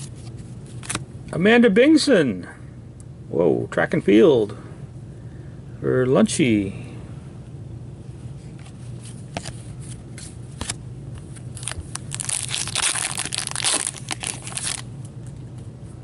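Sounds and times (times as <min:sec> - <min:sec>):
foil wrapper tearing and crinkling: 0:11.5 - 0:14.9.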